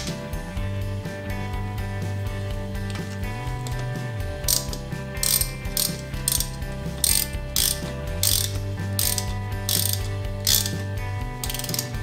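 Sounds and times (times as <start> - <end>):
hand ratchet clicking: 2.9 - 12.0.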